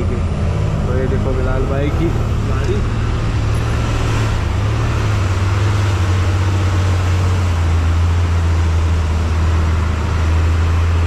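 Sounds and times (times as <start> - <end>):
road and wind noise: 0.0 - 11.0
truck engine droning: 0.0 - 11.0.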